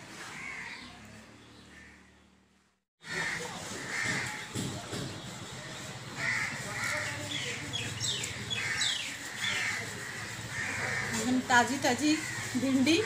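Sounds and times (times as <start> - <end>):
crows cawing: 0.2 - 0.9, 1.7 - 2.2, 3.0 - 4.5, 6.2 - 7.5, 8.4 - 11.4, 12.0 - 13.0
small birds chirping: 3.9 - 13.0.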